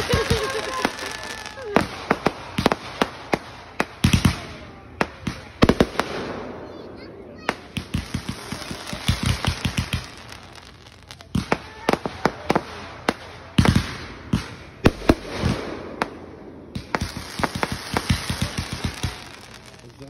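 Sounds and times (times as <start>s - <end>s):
fireworks bangs: 0.0s - 20.0s.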